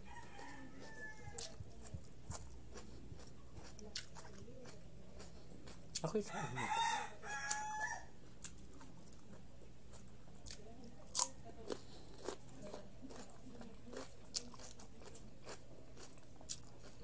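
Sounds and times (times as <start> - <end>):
cucumber being chewed: 0.0 - 6.4, 7.3 - 17.0.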